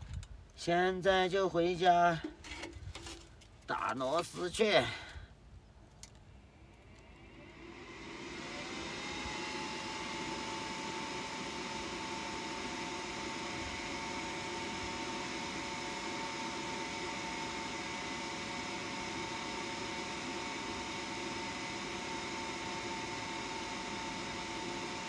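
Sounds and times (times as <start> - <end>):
small motor whirring: 6.1 - 25.0.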